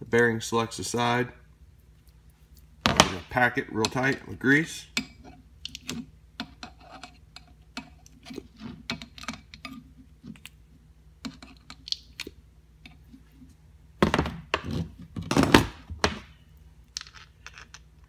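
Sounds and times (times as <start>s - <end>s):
ratchet rustle and clatter: 17.0s - 18.0s.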